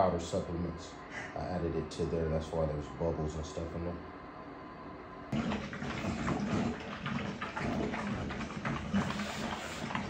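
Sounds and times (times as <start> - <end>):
dogs slurping and chewing food: 5.4 - 10.0.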